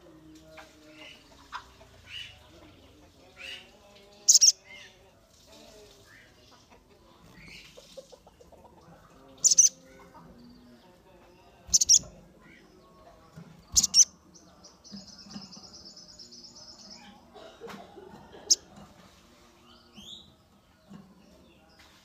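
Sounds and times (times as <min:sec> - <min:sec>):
bird chirping: 0:02.1 - 0:04.9, 0:09.2 - 0:17.2
sharp high bird twittering: 0:04.3 - 0:04.6, 0:09.4 - 0:09.8, 0:11.7 - 0:12.1, 0:13.7 - 0:14.1.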